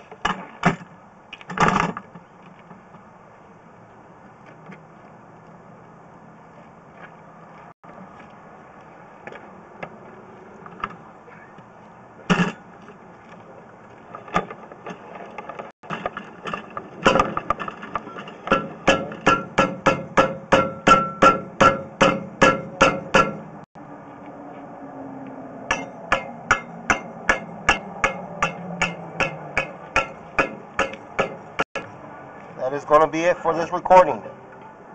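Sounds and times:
hammer blows: 0:17.0 - 0:23.5, 0:25.7 - 0:32.0.

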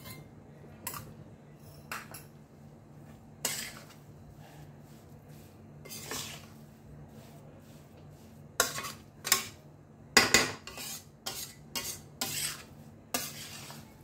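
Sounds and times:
metal spatula scraping pan: 0:03.4 - 0:09.6, 0:10.3 - 0:14.0.

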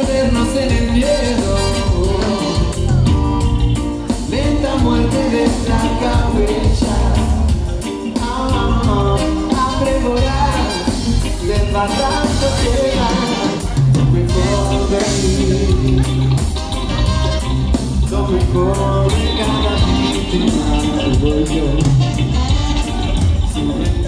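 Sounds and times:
live reggae band playing: 0:00.0 - 0:24.0.

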